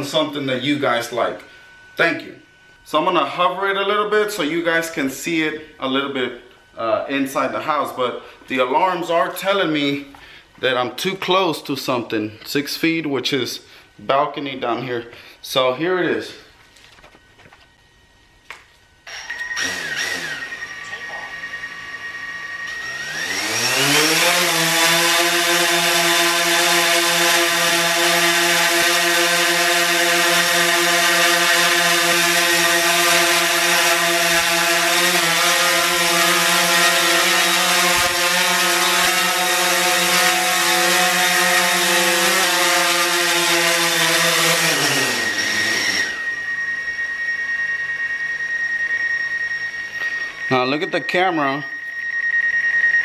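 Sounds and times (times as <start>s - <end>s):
drone propellers whirring: 19.0s - 50.5s.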